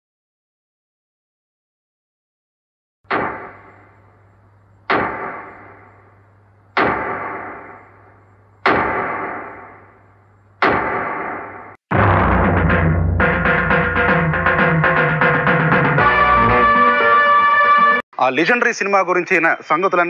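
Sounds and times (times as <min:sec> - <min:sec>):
ringing cinematic impact hits: 0:10.7 - 0:14.3
drum-led music: 0:11.9 - 0:18.0.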